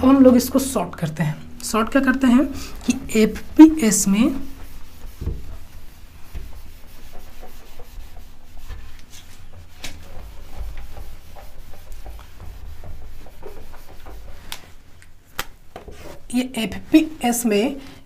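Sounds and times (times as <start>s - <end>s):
eraser rubbing whiteboard: 2.8s - 15.0s.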